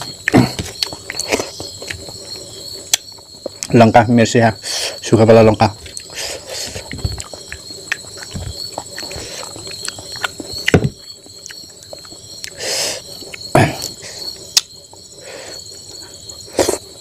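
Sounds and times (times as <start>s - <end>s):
chewing and mouth smacks: 0.0s - 3.7s, 5.8s - 12.6s
cricket chirping: 0.0s - 17.0s.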